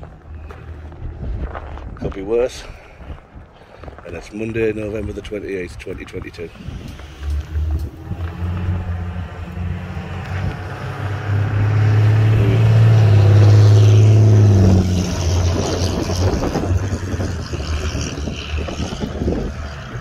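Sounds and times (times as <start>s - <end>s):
vehicle passing by: 5.8s - 20.0s.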